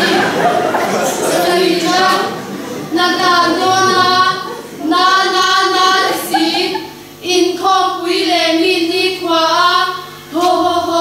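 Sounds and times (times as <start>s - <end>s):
group chanting in unison: 0.0s - 6.8s.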